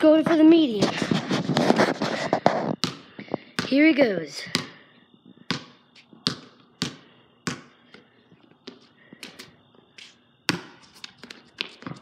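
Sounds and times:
basketball bouncing on concrete: 0:02.2 - 0:04.8, 0:05.4 - 0:08.0, 0:08.6 - 0:09.5, 0:10.4 - 0:12.0.

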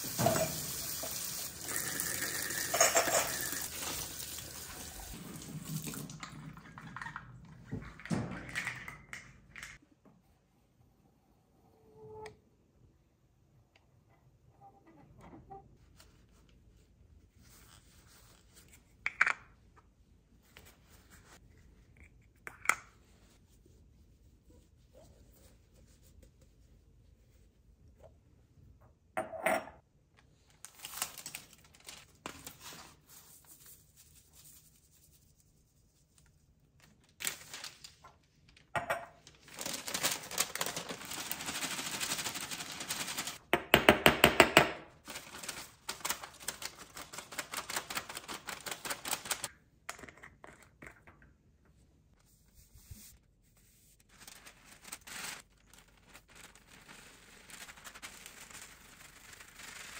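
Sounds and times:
glass jars and lids clinking: 0:02.4 - 0:03.6.

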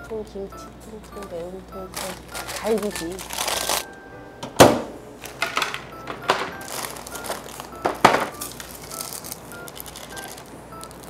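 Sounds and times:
plastic packets crinkling: 0:01.1 - 0:03.9, 0:05.2 - 0:11.0
sharp plastic crack: 0:02.0 - 0:03.9, 0:04.6 - 0:11.0.

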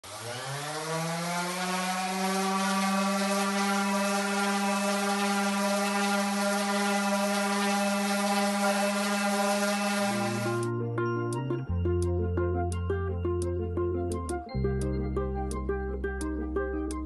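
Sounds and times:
orbital sander whining: 0:00.0 - 0:10.7
music: 0:04.0 - 0:17.0.

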